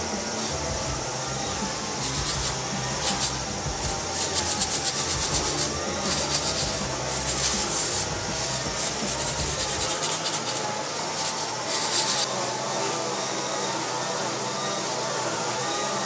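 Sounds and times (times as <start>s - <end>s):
coffee beans rattling in roaster: 0.0s - 12.3s.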